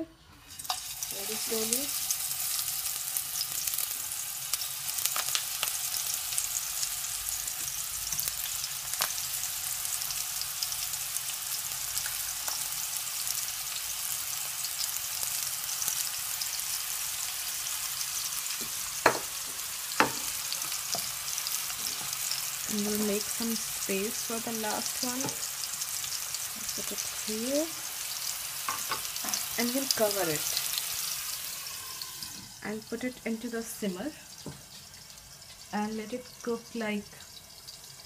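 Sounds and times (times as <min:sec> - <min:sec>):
patties sizzling in hot oil: 0:00.3 - 0:38.0.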